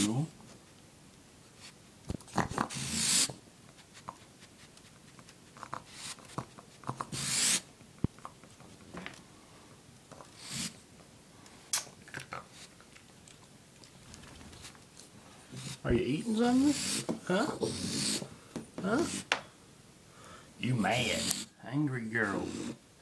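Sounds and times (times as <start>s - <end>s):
raccoon hissing: 1.6s - 5.0s, 5.6s - 7.7s, 10.2s - 10.8s, 15.5s - 19.4s, 20.6s - 21.6s, 22.2s - 22.9s
small clicks and rustles: 11.8s - 15.2s.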